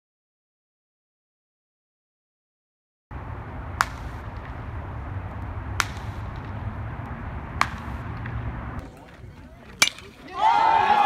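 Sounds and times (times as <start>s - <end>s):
low outdoor rumble: 3.1s - 10.8s
baseball bat cracks: 3.7s - 11.0s.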